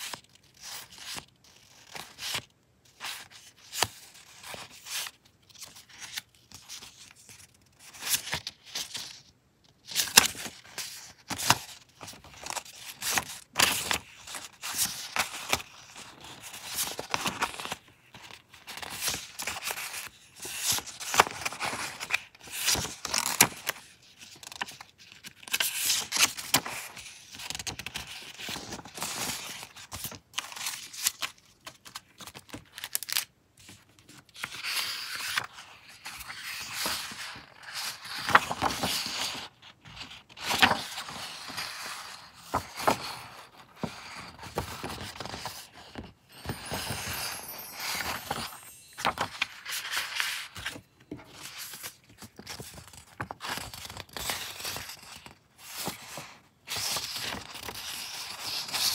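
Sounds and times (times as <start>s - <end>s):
paper rustling and flicking: 25.5s - 58.9s.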